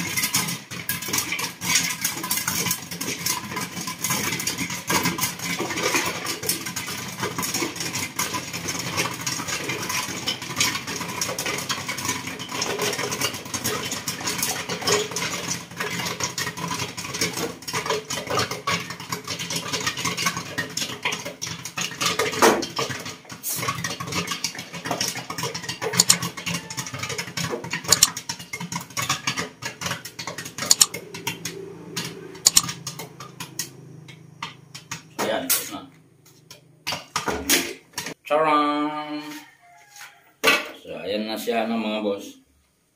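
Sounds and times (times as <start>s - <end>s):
popcorn popping in pot: 0.0s - 35.6s
kernels rattling against metal: 23.8s - 31.0s, 32.4s - 32.8s.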